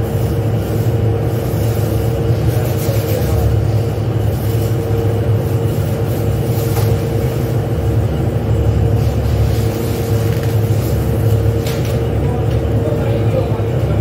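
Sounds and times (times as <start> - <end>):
factory machinery rumble: 0.0 - 14.0
steady hum tone: 0.0 - 14.0.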